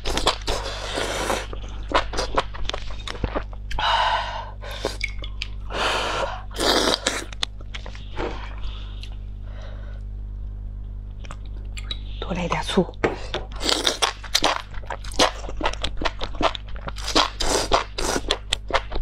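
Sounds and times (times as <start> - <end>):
chewing with small crunches: 0.0 - 3.8, 13.3 - 19.0.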